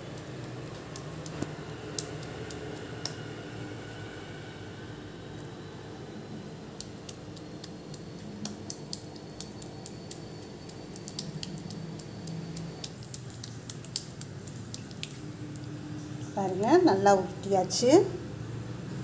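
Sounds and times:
sticky squelches of wet hands: 0:00.0 - 0:03.5, 0:06.6 - 0:17.0
faint steady hum: 0:00.0 - 0:19.0.

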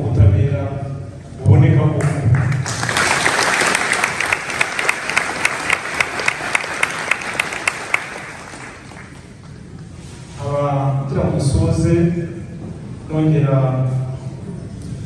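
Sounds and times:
audience applauding: 0:02.4 - 0:09.5.

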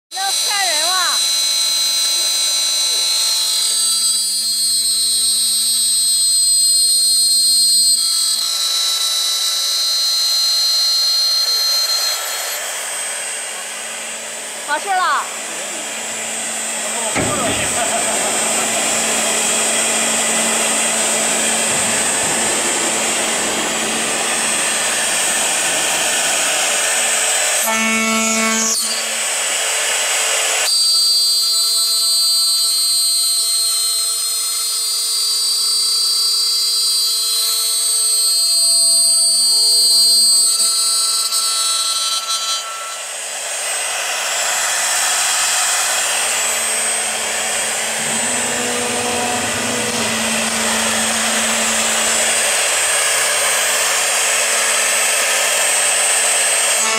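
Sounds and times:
high-pitched spindle whine: 0:00.1 - 0:56.9
rushing machine noise: 0:10.3 - 0:28.2, 0:43.2 - 0:56.9.

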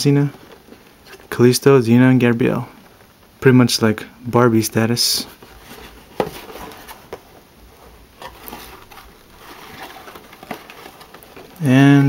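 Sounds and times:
light rustling: 0:05.2 - 0:12.0.

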